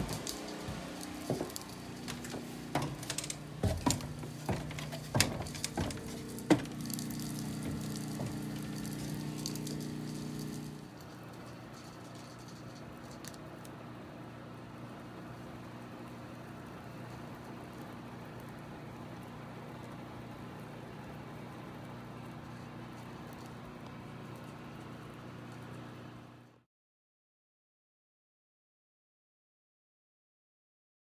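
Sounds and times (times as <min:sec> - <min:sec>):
knocks and clatters: 0:00.0 - 0:13.4
insulation rushing from hose: 0:00.0 - 0:13.9
insulation blower hum: 0:00.0 - 0:26.6.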